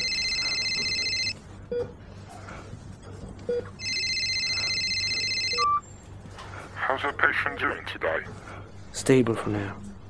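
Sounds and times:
phone trilling ring tone: 0.0s - 1.4s, 3.8s - 5.8s.

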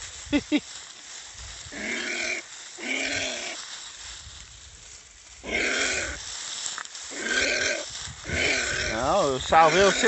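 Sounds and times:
anteater pup hoarse calls: 7.1s - 10.0s.

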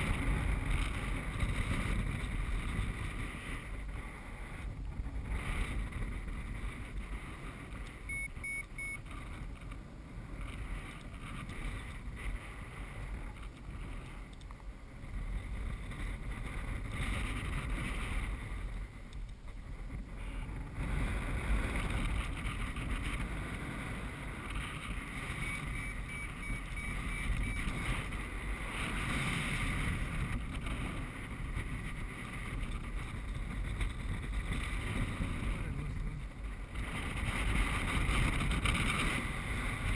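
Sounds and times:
wind rushing over microphone: 0.0s - 39.9s
short high beeps: 8.1s - 9.0s, 25.4s - 27.8s.

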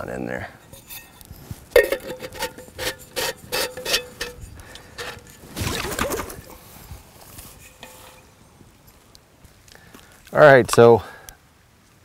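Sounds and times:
mug scraping into campfire: 0.6s - 9.0s
metal mug clinking: 0.7s - 4.4s.

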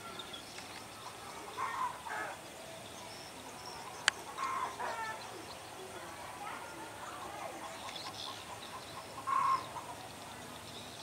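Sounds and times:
short bird calls: 3.8s - 5.4s, 7.6s - 10.0s.

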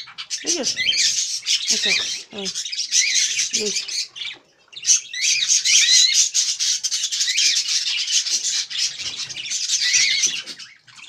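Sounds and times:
budgerigar chattering: 0.0s - 4.1s.

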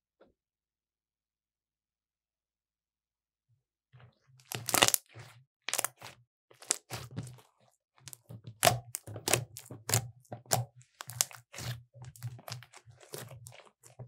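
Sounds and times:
slime popping and crackling: 4.4s - 7.4s, 8.1s - 14.0s.

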